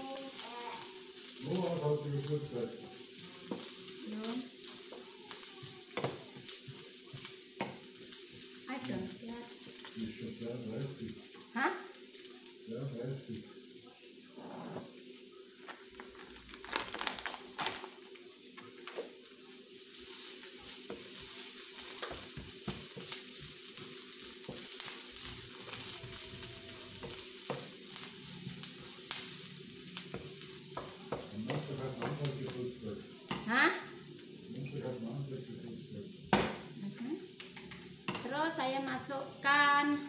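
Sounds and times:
cabbage sizzling in frying pan: 0.0s - 40.0s
wooden spatula scraping a pan: 14.3s - 15.0s.

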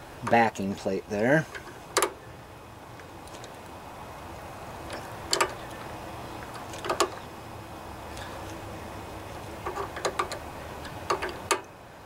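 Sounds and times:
wind hiss: 0.0s - 12.0s
screwdriver metal clicks: 9.6s - 11.7s.

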